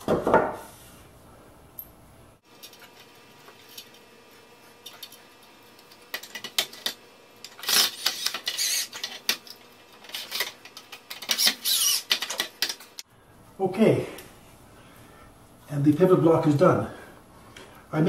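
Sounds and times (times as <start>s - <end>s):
cordless drill into wood: 7.6s - 9.0s, 11.3s - 12.3s.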